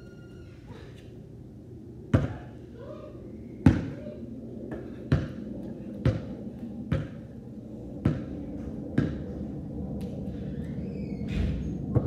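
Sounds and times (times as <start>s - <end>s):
basketball bouncing on concrete: 2.1s - 2.4s, 3.6s - 3.9s, 4.7s - 5.4s, 6.0s - 6.3s, 6.9s - 7.2s, 8.0s - 8.3s, 9.0s - 9.2s.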